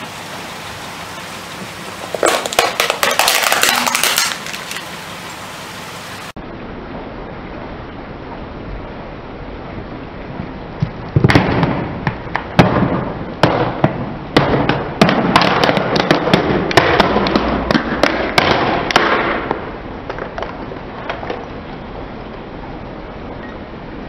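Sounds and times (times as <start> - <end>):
plastic cracking under car tyre: 2.1 - 4.9.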